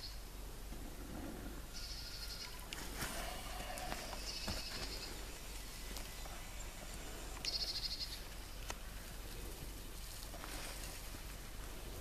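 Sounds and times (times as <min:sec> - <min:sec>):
burning tinder crackling: 0:08.1 - 0:12.0.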